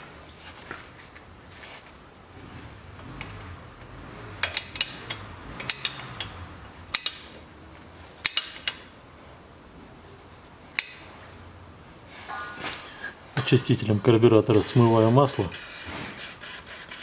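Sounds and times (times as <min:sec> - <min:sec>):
wrench clinking against metal: 0:04.4 - 0:07.4, 0:08.2 - 0:08.8.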